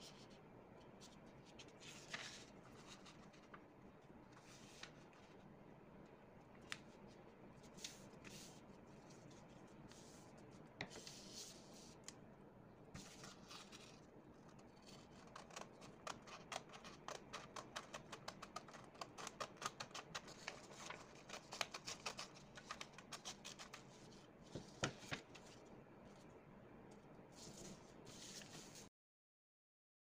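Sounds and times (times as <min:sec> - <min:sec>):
scissors snipping paper: 0:15.0 - 0:23.8.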